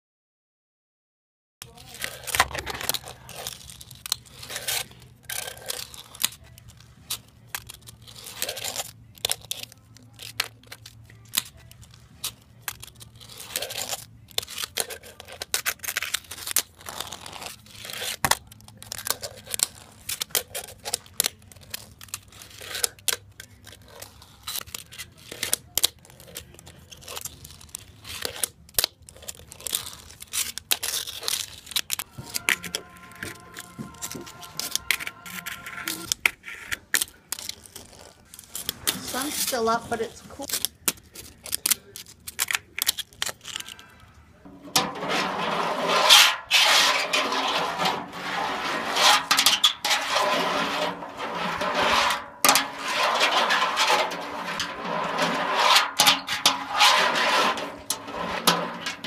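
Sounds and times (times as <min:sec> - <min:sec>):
fingerboard wheels scraping concrete: 0:01.6 - 0:59.0.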